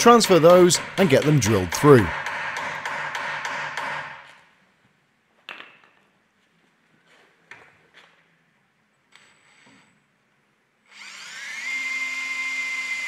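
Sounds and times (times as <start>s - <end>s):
hammer striking steel punch: 0.2s - 4.2s.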